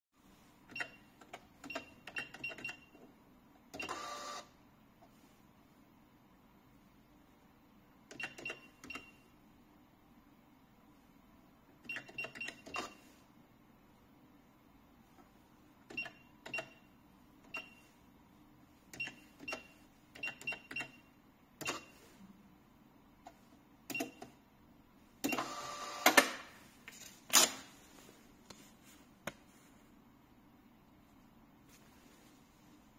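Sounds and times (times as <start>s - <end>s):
cash register key clicks with beeps: 0.7s - 3.0s, 8.1s - 9.2s, 11.8s - 13.0s, 15.9s - 17.8s, 18.9s - 22.0s, 23.9s - 24.4s
receipt printer printing: 3.8s - 4.5s, 25.3s - 26.2s.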